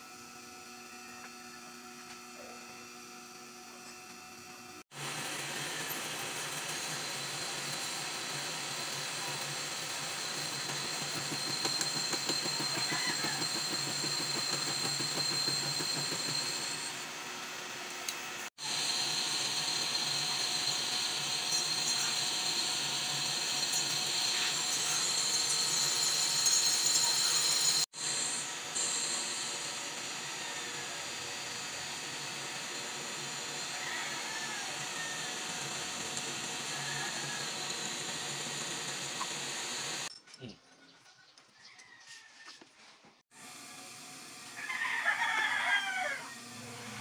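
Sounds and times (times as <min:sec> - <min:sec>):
metal lathe whining: 0:04.4 - 0:40.1.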